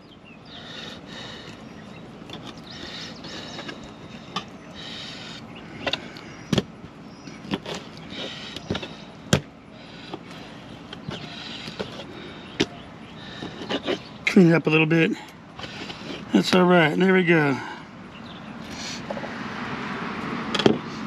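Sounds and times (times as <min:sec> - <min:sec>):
knife scraping: 0:13.3 - 0:14.1.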